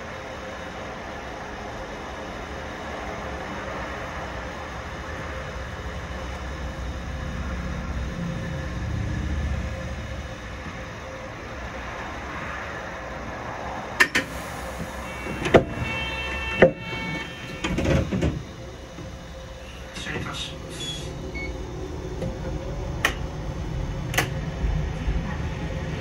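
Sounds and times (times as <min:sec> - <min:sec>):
tram running rumble: 0:00.0 - 0:26.0
short tone: 0:15.0 - 0:18.0.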